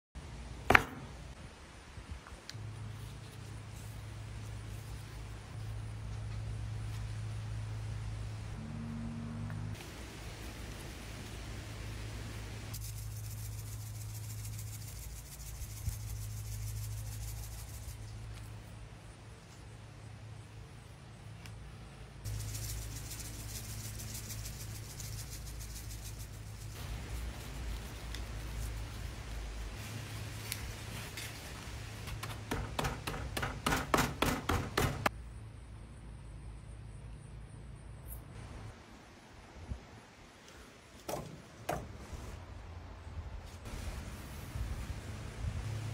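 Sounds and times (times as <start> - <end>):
small knock: 0.7 - 1.1
low hum: 2.5 - 32.0
seasoning grains pattering: 12.7 - 18.1, 22.3 - 29.5
gloved hand rubbing meat: 22.3 - 31.1.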